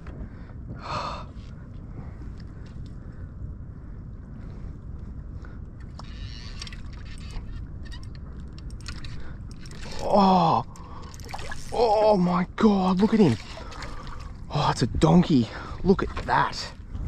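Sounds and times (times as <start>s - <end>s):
wind and water rumble: 0.0s - 17.0s
fishing tackle clicking: 5.8s - 10.1s.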